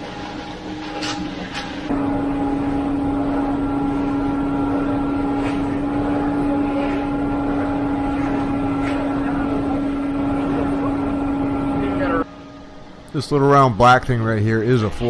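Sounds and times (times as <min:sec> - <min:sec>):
truck engine droning: 0:01.8 - 0:13.6.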